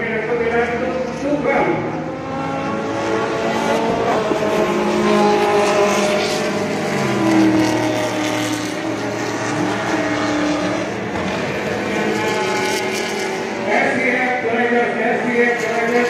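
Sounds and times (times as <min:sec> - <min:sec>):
race car engines accelerating: 0:00.0 - 0:16.0.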